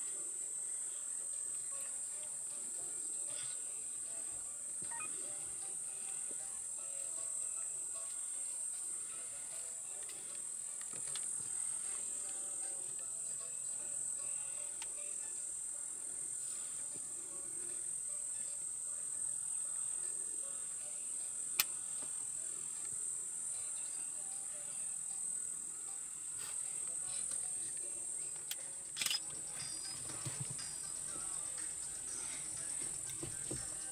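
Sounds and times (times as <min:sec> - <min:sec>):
insects shrilling: 0:00.0 - 0:33.9
sharp click: 0:29.0 - 0:29.3.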